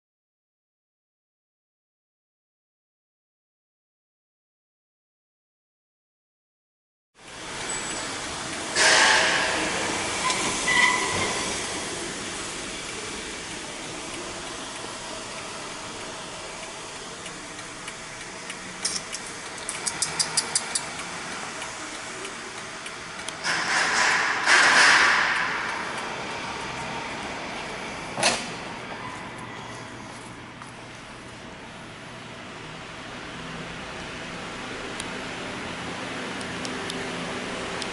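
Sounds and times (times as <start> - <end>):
sharp clicks: 17.6 - 21.4.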